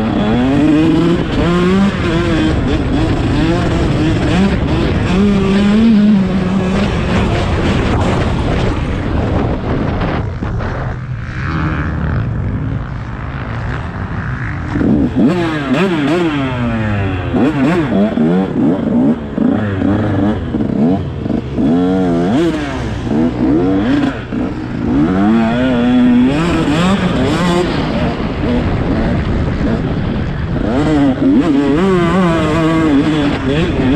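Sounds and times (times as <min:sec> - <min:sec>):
motocross engine revving: 0:00.0 - 0:33.9.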